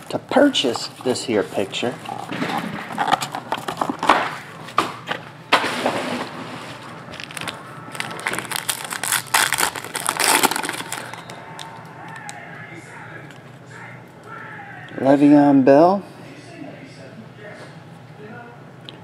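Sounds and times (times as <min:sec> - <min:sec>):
foil wrapper crinkling and tearing: 0:07.1 - 0:12.3.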